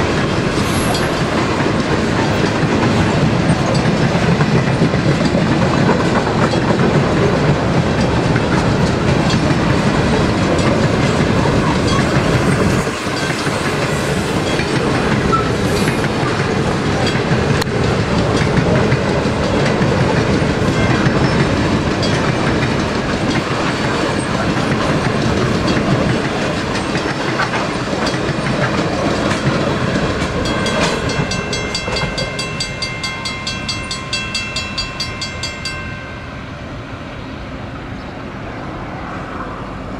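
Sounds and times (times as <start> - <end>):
train wheels clattering on rails: 0.0 - 36.2
high steady ringing: 30.4 - 36.7.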